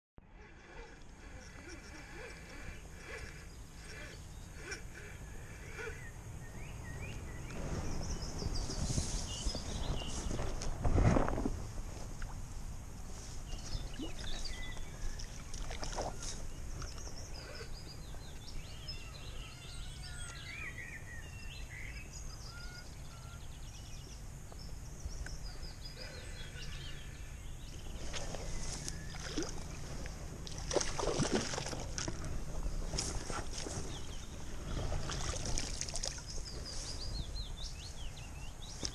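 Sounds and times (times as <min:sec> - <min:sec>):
small birds chirping: 0:00.3 - 0:10.6, 0:13.2 - 0:38.9
rustling through grass and clothing: 0:06.8 - 0:18.6, 0:27.7 - 0:38.9.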